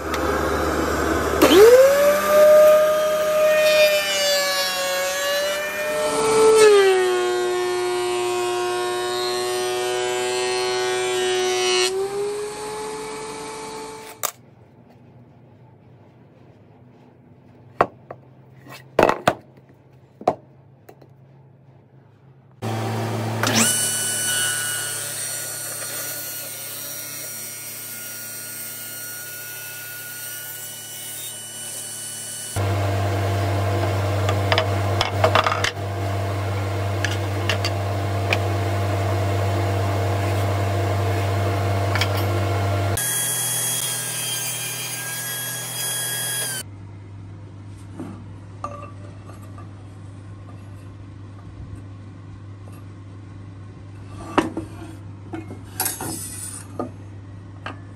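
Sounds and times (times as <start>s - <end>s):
table saw cutting wood: 0.0s - 14.2s, 22.6s - 46.6s.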